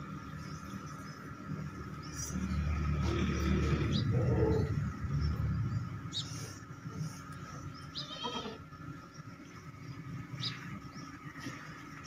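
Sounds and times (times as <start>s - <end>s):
goat bleating: 7.9s - 8.7s.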